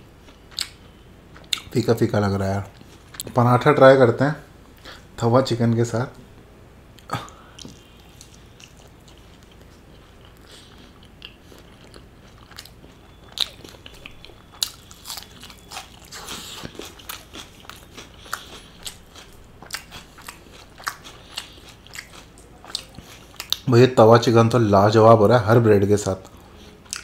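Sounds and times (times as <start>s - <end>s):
close chewing: 7.3s - 23.7s, 26.2s - 27.0s
small food crunches: 7.6s - 23.6s.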